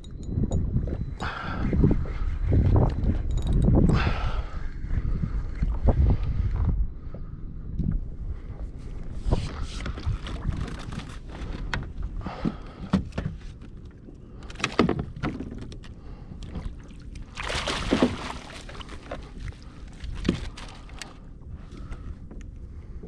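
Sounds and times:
water splashing beside kayak: 16.4 - 21.2.

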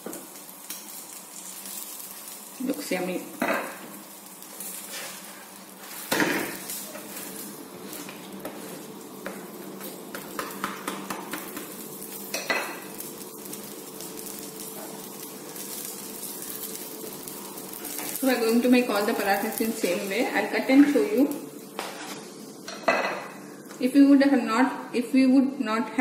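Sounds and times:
bread sizzling in a pan: 0.0 - 25.0
metal spatula scraping a pan: 4.8 - 6.3.

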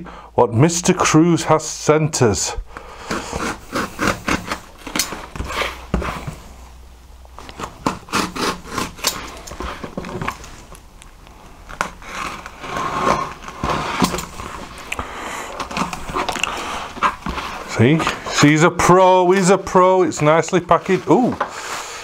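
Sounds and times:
cardboard box scrapes and knocks: 3.1 - 6.6, 11.8 - 14.9, 15.6 - 18.4
utility knife slicing tape: 7.6 - 9.4.

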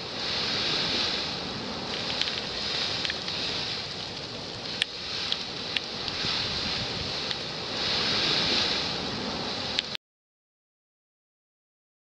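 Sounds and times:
high hiss: 0.0 - 10.0
wind on microphone: 0.0 - 10.0
faint ticks: 1.9 - 6.2.

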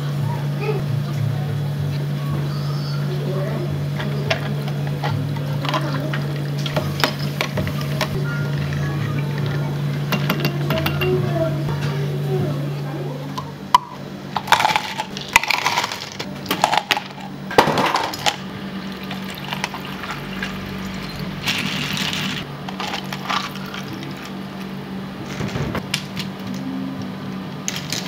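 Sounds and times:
steady low hum: 0.0 - 28.0
dishes and utensils clinking: 9.4 - 11.4.

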